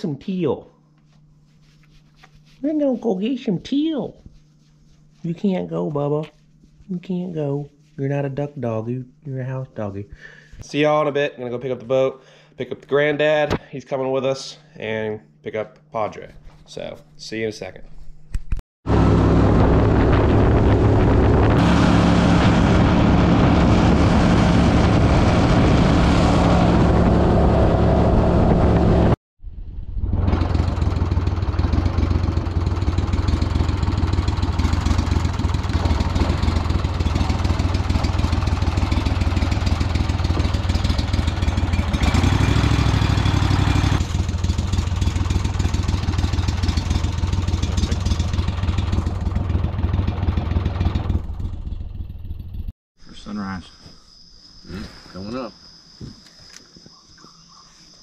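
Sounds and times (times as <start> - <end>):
boat motor droning: 18.9 - 29.2, 30.4 - 50.0.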